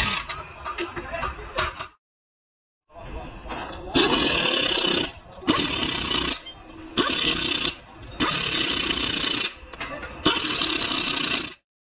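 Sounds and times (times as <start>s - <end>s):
pneumatic impact wrench: 0.0s - 0.4s, 4.0s - 6.4s, 7.0s - 9.6s, 10.2s - 11.6s.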